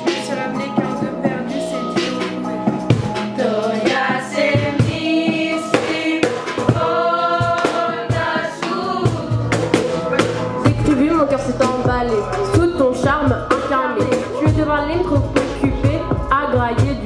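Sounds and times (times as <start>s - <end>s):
steady percussive beat: 0.0s - 17.0s
women singing together: 3.3s - 9.6s, 12.5s - 17.0s.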